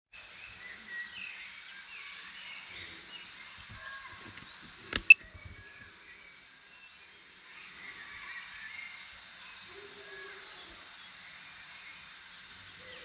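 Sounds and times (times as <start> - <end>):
birds chirping: 0.2 - 13.0
sharp click: 4.4 - 5.2.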